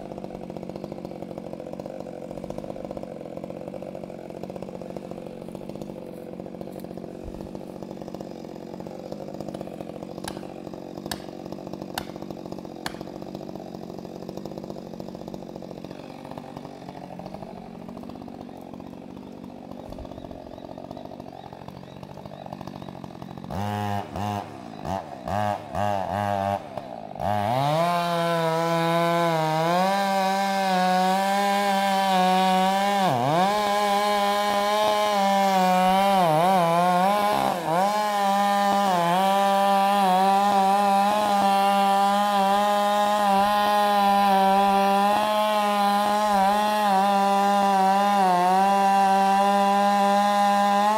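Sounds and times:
chainsaw cutting tree trunk: 0.0s - 50.9s
chainsaw revving: 0.0s - 50.9s.

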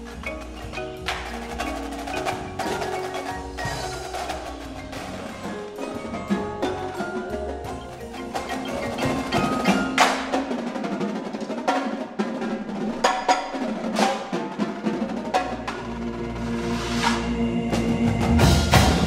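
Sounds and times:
marimbas ringing: 0.0s - 11.4s
sharp accented percussion hits: 0.0s - 12.0s
drums: 0.0s - 19.0s.

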